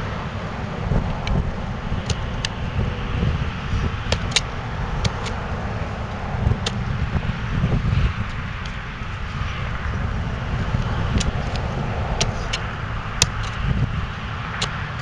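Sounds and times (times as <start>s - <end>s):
outdoor rumble and hiss: 0.0s - 15.0s
sharp clicks: 2.0s - 2.6s, 10.8s - 13.6s.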